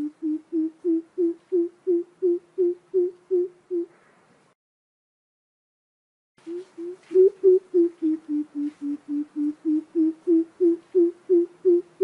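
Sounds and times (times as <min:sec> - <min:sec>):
bird hooting: 0:00.0 - 0:03.9, 0:06.4 - 0:12.0.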